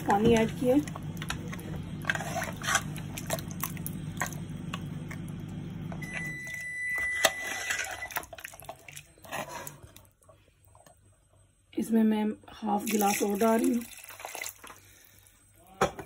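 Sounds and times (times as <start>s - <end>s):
liquid sloshing: 0.0s - 5.2s, 7.3s - 10.9s, 12.8s - 15.3s
low steady hum: 0.0s - 16.0s.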